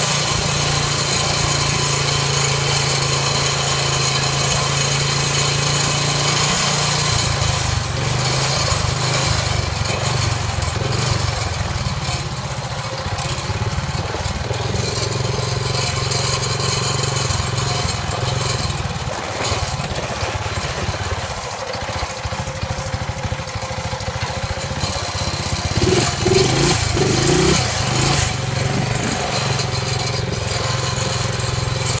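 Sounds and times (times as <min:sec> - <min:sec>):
small motorbike engine running: 0:00.0 - 0:32.0.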